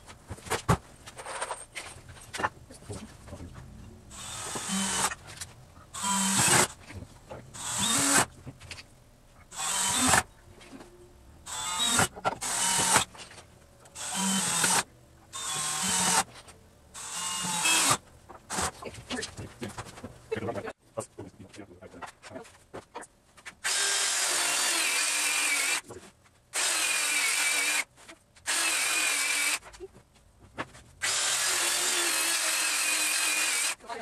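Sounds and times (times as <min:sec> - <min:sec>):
power drill driving screws: 0:04.1 - 0:05.2, 0:06.0 - 0:06.8, 0:07.6 - 0:08.3, 0:09.5 - 0:10.3, 0:11.5 - 0:13.1, 0:14.0 - 0:16.3, 0:17.0 - 0:18.8, 0:23.6 - 0:25.8, 0:26.6 - 0:27.9, 0:28.5 - 0:29.6, 0:31.0 - 0:33.8.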